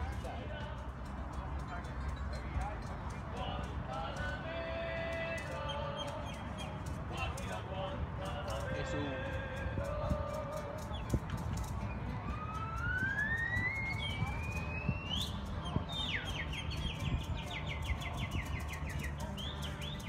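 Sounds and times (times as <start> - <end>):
distant siren wailing and yelping: 12.1 - 15.1.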